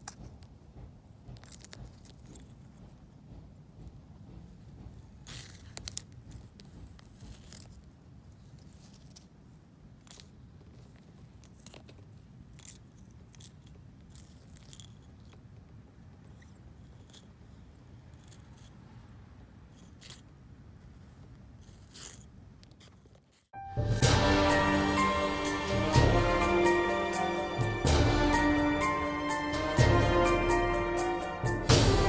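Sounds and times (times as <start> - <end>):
tortoise crunching and scraping: 1.4 - 2.7, 5.2 - 23.5.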